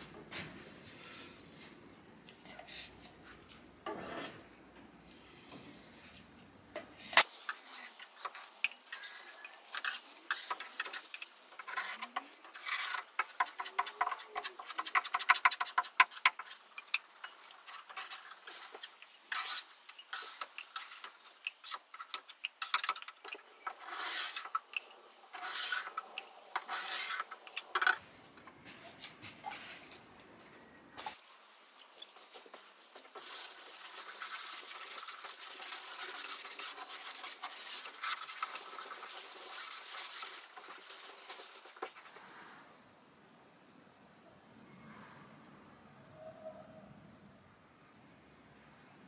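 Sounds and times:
metal scraper scraping wood: 0:08.9 - 0:16.5, 0:17.6 - 0:28.0.

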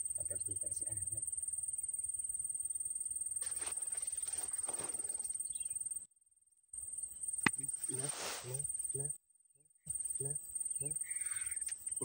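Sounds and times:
insects trilling: 0:00.0 - 0:12.0
rustling: 0:03.4 - 0:05.4, 0:07.5 - 0:08.7.

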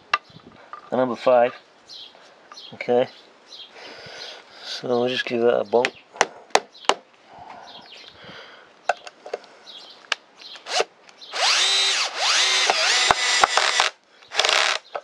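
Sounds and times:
drill driving screw into wood: 0:10.6 - 0:14.8.

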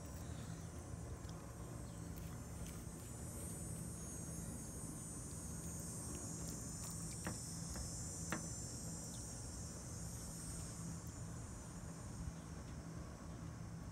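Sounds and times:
high-pitched insect chorus: 0:00.0 - 0:13.9.

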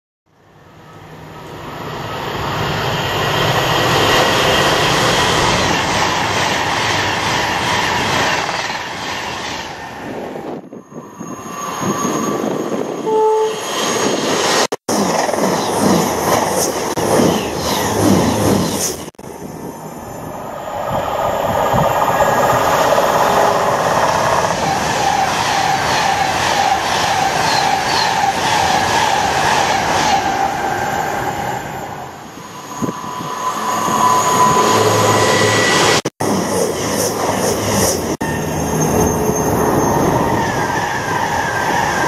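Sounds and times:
train rushing past: 0:00.8 - 0:42.0
train horn: 0:13.0 - 0:13.7.

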